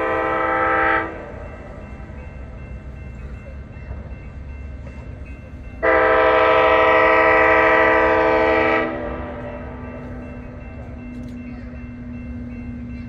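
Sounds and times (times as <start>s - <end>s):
locomotive air horn blast: 0.0s - 1.3s, 5.8s - 9.9s
low train rumble: 0.0s - 13.0s.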